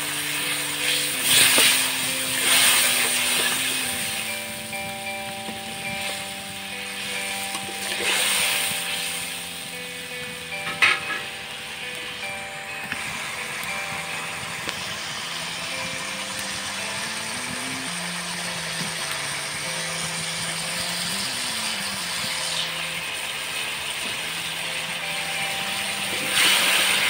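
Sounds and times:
curry bubbling and sizzling in wok: 0:00.0 - 0:04.8, 0:12.9 - 0:27.0.

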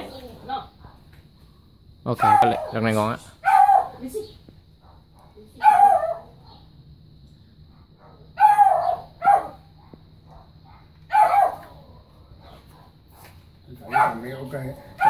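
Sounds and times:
dog barking: 0:02.2 - 0:04.2, 0:04.8 - 0:06.7, 0:07.7 - 0:15.0.

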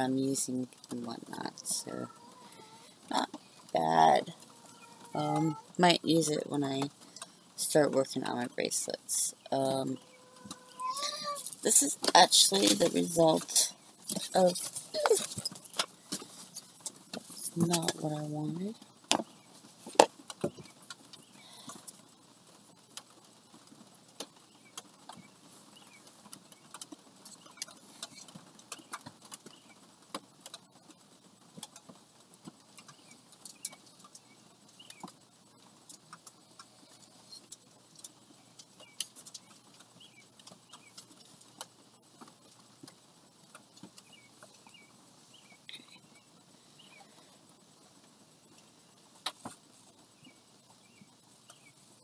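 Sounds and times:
card and yarn taps and rustles: 0:19.1 - 0:21.0.

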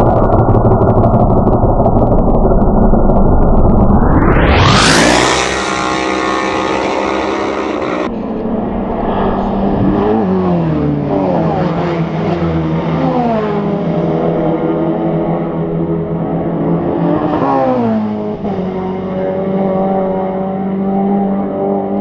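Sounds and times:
motorbikes revving past: 0:04.2 - 0:15.8.

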